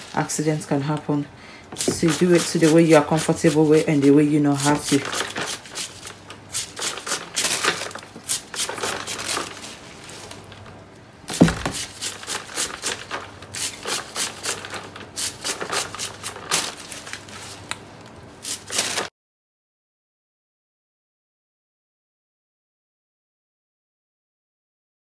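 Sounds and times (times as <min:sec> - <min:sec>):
sharp knock: 0:11.3 - 0:11.8.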